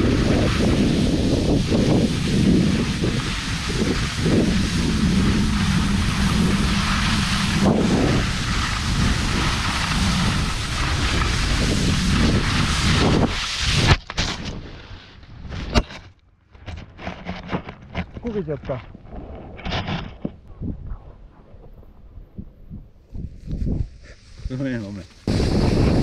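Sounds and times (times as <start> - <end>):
skier falling into snow: 0.0 - 15.8, 23.1 - 26.0
skis scraping over snow: 0.0 - 15.8, 23.2 - 26.0
wind rushing across microphone: 0.0 - 15.8, 17.2 - 26.0
knocks and bumps in snow: 0.0 - 16.0, 23.1 - 26.0.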